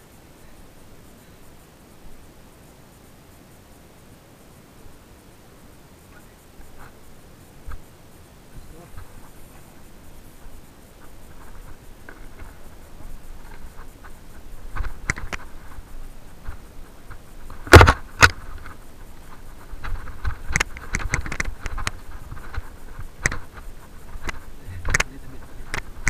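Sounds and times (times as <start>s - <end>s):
mountain bike rattling on rocks: 10.3s - 26.0s.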